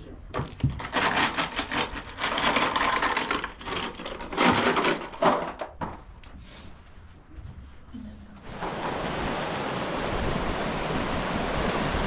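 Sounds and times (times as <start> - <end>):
hard objects clattering together: 0.3 - 6.0.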